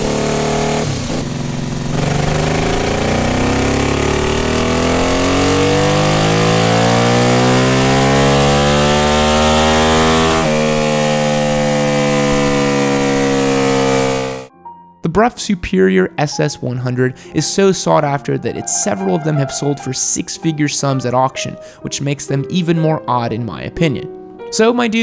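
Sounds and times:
motorcycle engine revving: 0:00.0 - 0:14.5.

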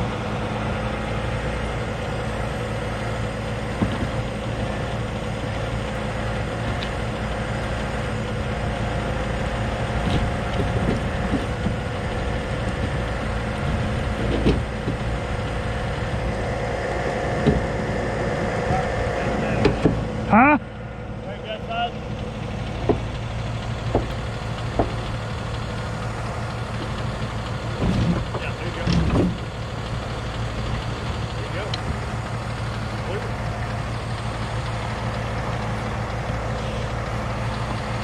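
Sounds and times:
diesel engine running: 0:00.0 - 0:38.0
winch dragging vehicle: 0:00.0 - 0:38.0
sharp knocks: 0:17.4 - 0:17.8, 0:19.6 - 0:20.1, 0:23.8 - 0:25.1.

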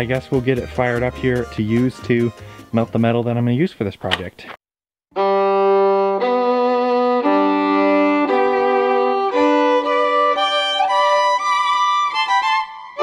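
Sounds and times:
violin melody: 0:05.1 - 0:13.0.

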